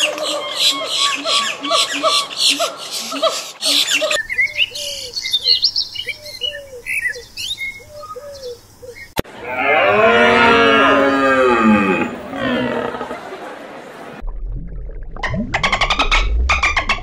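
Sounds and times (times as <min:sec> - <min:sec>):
bird calls: 0:00.0 - 0:09.2
long loud animal call: 0:09.4 - 0:13.2.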